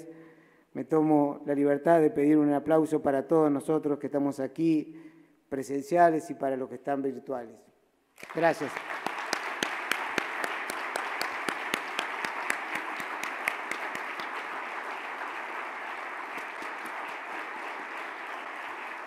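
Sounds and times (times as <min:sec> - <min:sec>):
audience applauding: 0:08.2 - 0:19.0
close sharp claps: 0:08.2 - 0:19.0.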